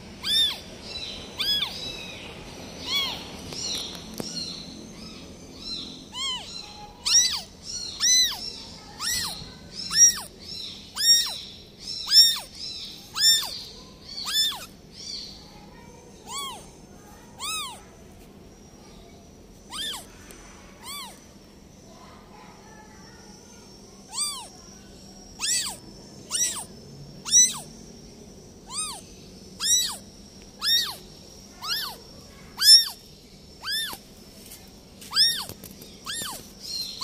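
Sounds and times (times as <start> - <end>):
kitten meowing: 0.2 - 0.6, 1.4 - 1.8, 2.8 - 3.2, 6.1 - 8.4, 9.0 - 10.3, 11.0 - 11.4, 12.1 - 12.5, 13.1 - 13.5, 14.2 - 14.7, 16.3 - 16.6, 17.4 - 17.8, 19.7 - 20.0, 20.8 - 21.2, 24.1 - 24.5, 25.4 - 27.7, 28.7 - 29.0, 29.6 - 30.0, 30.6 - 31.0, 31.6 - 32.0, 32.6 - 33.0, 33.6 - 34.0, 35.1 - 36.4.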